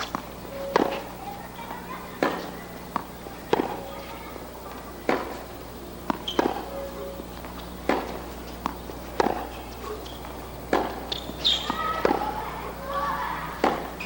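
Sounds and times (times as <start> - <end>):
tennis ball struck by rackets: 0.0 - 1.2, 2.2 - 4.0, 4.9 - 12.6, 13.6 - 14.0
tennis ball bouncing on court: 0.0 - 14.0.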